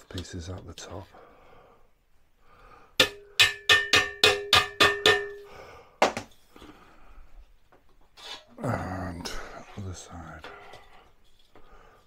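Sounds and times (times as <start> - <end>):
mallet striking metal bracket: 3.0 - 5.4.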